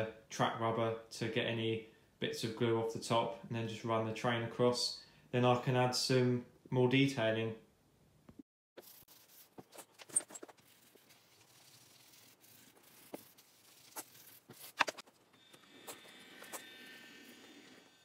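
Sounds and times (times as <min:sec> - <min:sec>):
sharp scrapes and clicks: 0:08.8 - 0:18.0.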